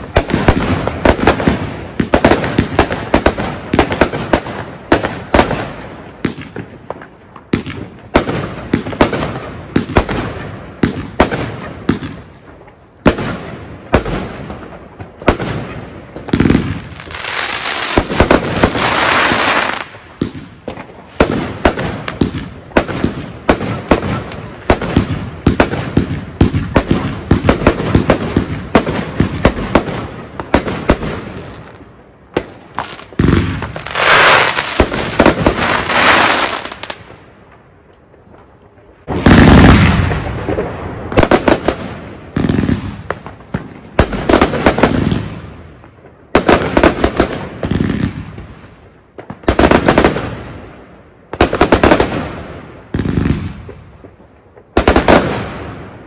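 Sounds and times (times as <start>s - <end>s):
fireworks shots and bursts: 0.0s - 56.0s
firework hissing: 16.4s - 19.9s, 33.3s - 36.9s.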